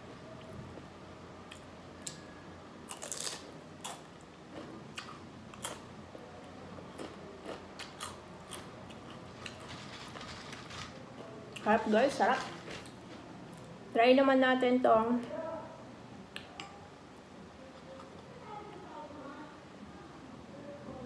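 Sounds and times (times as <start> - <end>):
person crunching tortilla chip: 2.9 - 4.0.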